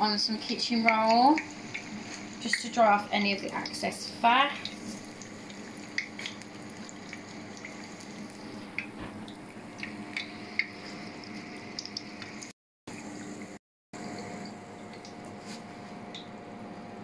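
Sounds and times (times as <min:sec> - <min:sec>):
food sizzling in hot oil: 0:00.7 - 0:12.5
oil pops and crackles: 0:04.6 - 0:12.5.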